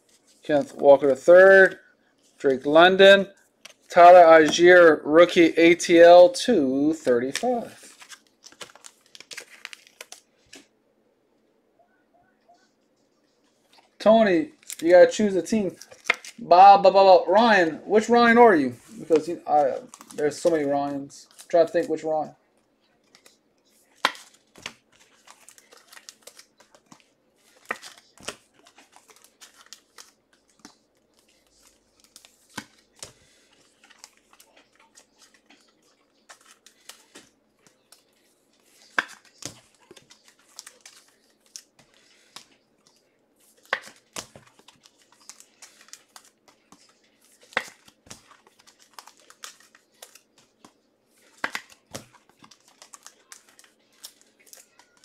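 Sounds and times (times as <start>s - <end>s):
wrapping crinkling and tearing: 7.1s - 10.7s, 15.5s - 16.4s, 23.0s - 55.0s.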